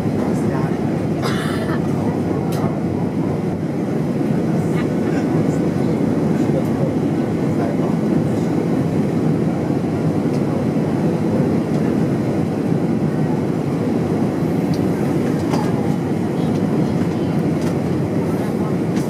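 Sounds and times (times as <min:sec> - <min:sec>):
airplane cabin engine rumble: 0:00.0 - 0:19.0.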